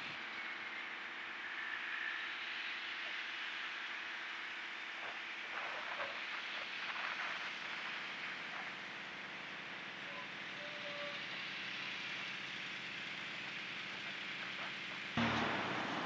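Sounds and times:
road traffic passing: 15.2s - 16.0s.

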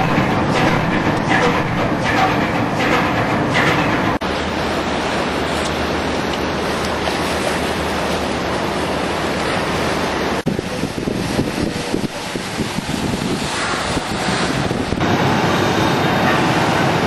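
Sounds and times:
low engine drone: 0.0s - 17.0s
water rushing along hull: 0.0s - 17.0s
wind on microphone: 10.4s - 15.1s.

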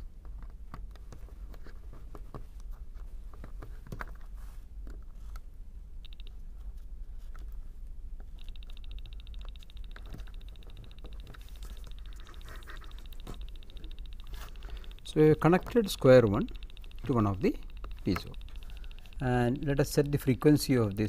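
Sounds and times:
screwdriver clicking and scraping: 8.4s - 20.4s
piezo buzzer beeping: 8.4s - 21.0s.

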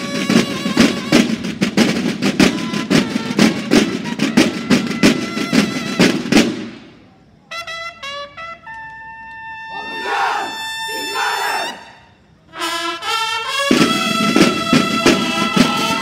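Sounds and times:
snare drums march rhythm: 0.0s - 6.8s, 13.2s - 16.0s
bugles playing: 0.0s - 16.0s.

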